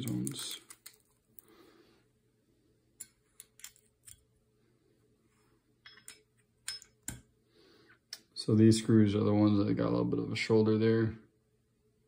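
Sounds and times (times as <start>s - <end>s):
small metal parts clicking: 3.0s - 4.2s.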